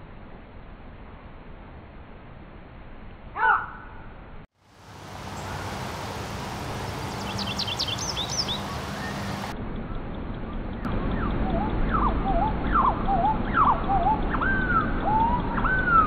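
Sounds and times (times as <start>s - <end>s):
background hiss: 4.6s - 9.5s
goldfinch twittering song: 6.8s - 16.0s.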